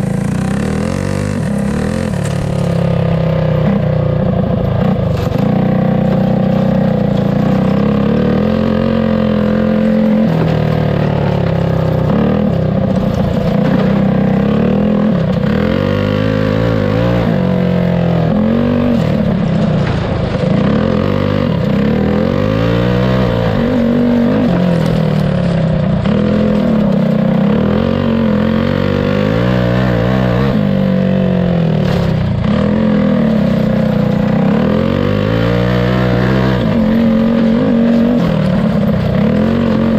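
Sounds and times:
go-kart engine revving: 0:00.0 - 0:39.9.

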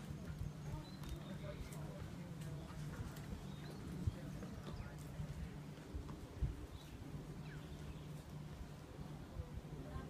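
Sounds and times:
faint bird chirps: 0:00.0 - 0:01.8, 0:06.6 - 0:08.6.

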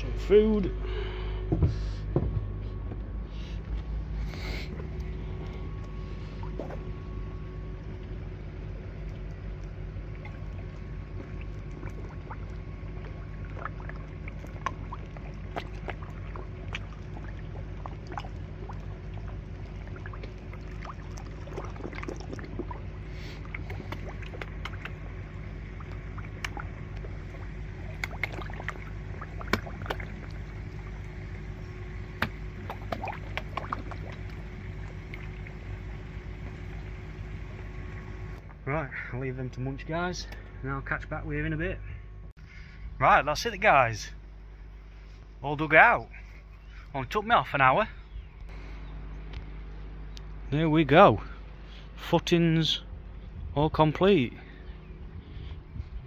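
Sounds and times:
steady low hum: 0:00.0 - 0:56.0
fish splashing at water surface: 0:09.0 - 0:37.0.

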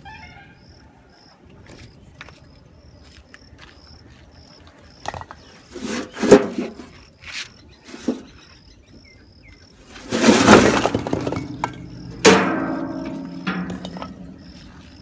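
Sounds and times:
bricks clattering into metal box: 0:10.0 - 0:14.3
metal box clank and ringing: 0:10.3 - 0:14.5.

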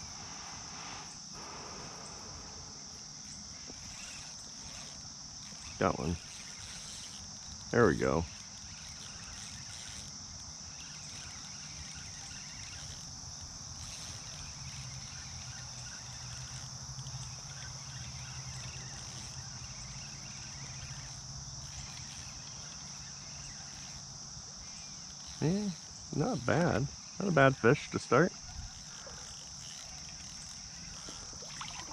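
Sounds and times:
crickets trilling: 0:00.0 - 0:31.9.

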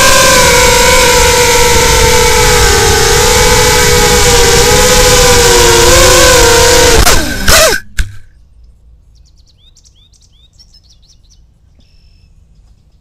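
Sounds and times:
drone motors winding down: 0:00.0 - 0:08.3
small birds chirping: 0:08.4 - 0:13.0.

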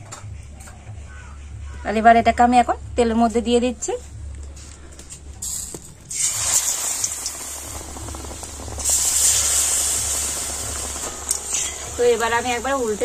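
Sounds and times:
batter sizzling in hot oil: 0:05.5 - 0:13.0.

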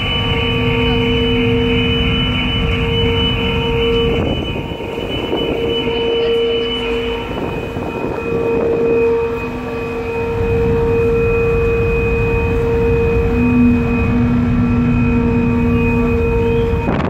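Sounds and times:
machinery humming tones: 0:00.0 - 0:17.0
machinery low rumble: 0:00.0 - 0:17.0.

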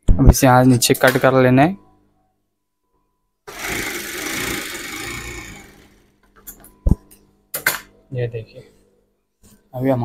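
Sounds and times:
sewing machine running fast: 0:03.5 - 0:06.1.

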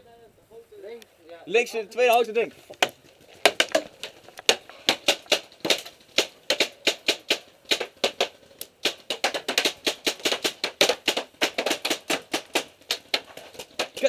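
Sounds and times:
paintballs hitting wooden boards: 0:02.1 - 0:14.0
paintball markers firing: 0:02.8 - 0:14.0.

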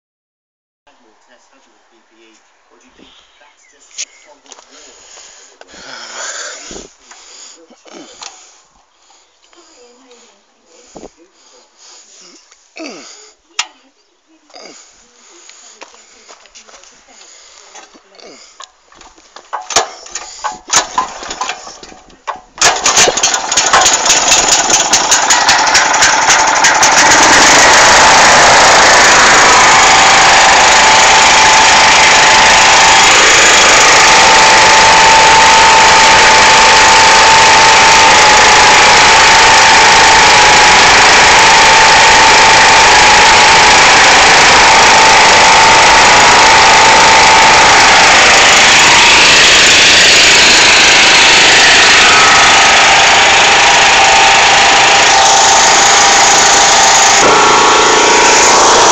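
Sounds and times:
generator engine starting and running: 0:04.0 - 0:14.0, 0:14.7 - 0:58.9
steady whine: 0:19.0 - 0:58.9.

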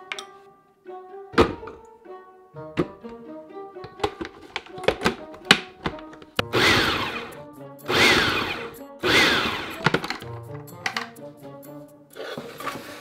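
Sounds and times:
food processor whirring and chopping: 0:06.4 - 0:10.2.

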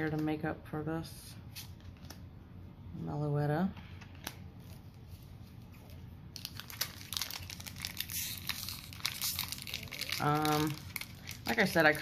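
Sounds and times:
foil wrapper crinkling: 0:05.8 - 0:12.0
foil pack tearing: 0:06.4 - 0:12.0.

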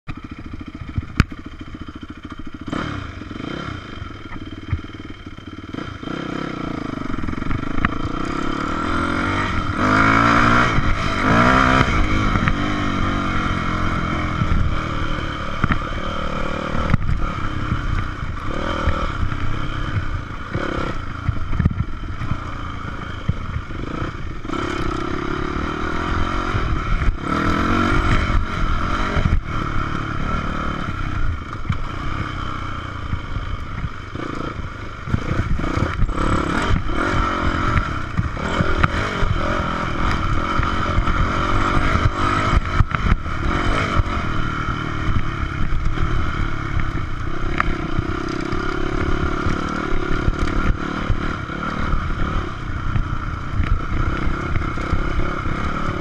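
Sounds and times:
dirt bike engine revving: 0:00.1 - 0:56.0.

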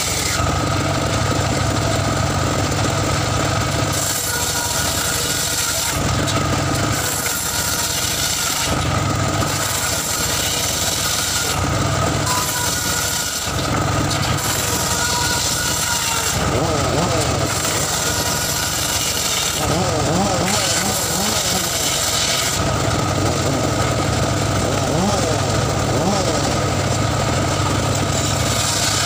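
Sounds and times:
saw blade cutting log: 0:00.0 - 0:29.0
deep rumble: 0:22.6 - 0:28.8.

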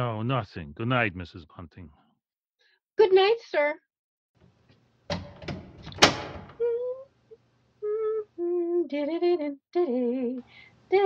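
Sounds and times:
woman humming: 0:06.6 - 0:07.1, 0:07.8 - 0:10.4.

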